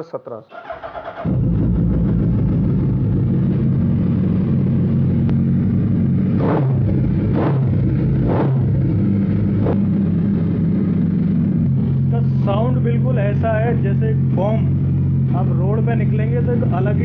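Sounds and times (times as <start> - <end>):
motorcycle engine idling and revving: 0.6 - 17.0.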